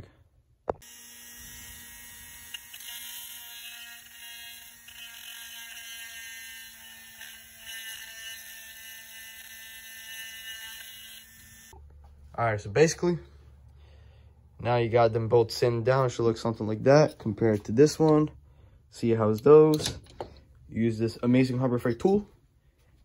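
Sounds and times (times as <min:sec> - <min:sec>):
rotary tool high-pitched whine: 0:00.8 - 0:11.8.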